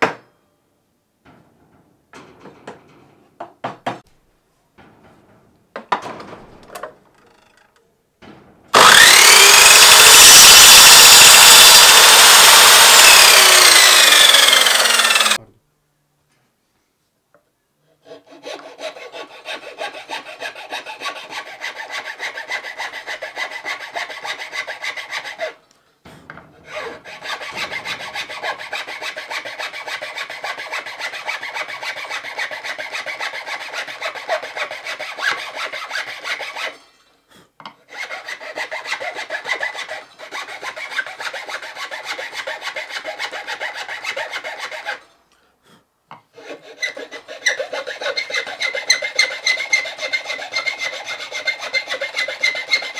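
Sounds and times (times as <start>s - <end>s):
hand file rasping wood: 8.8s - 15.4s, 18.0s - 25.6s, 26.3s - 36.8s, 37.7s - 45.1s, 46.2s - 52.9s.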